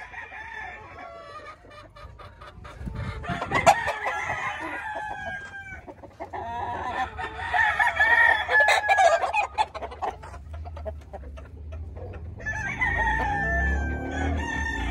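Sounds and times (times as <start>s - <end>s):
rooster crowing: 0.0s - 1.2s, 3.2s - 5.9s, 6.5s - 9.4s, 12.4s - 14.9s.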